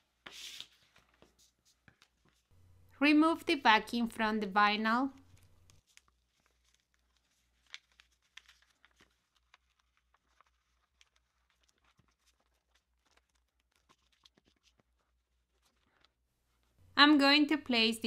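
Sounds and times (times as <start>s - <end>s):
paper backing crinkling as peeled: 5.2s - 16.2s.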